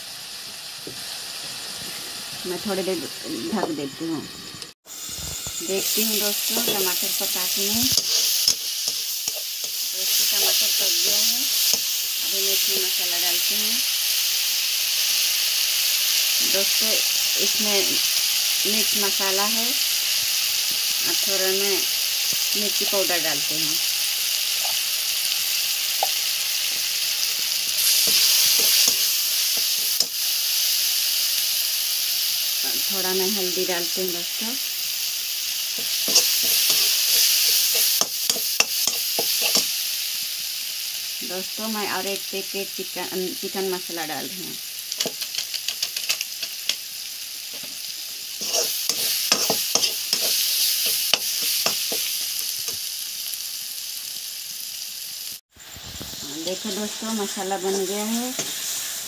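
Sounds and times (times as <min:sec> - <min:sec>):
masala sizzling in oil: 0:00.0 - 0:59.0
spatula clacking on pan: 0:48.4 - 0:52.0.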